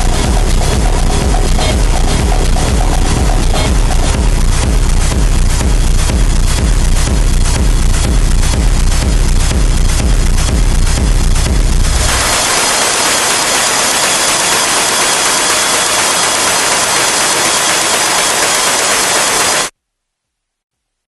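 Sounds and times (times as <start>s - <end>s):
electronic music hissing noise: 0.0s - 19.7s.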